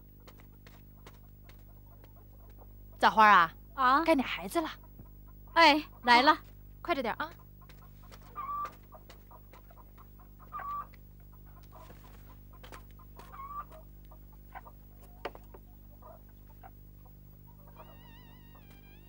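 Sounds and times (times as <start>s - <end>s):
chickens clucking: 0.0s - 19.0s.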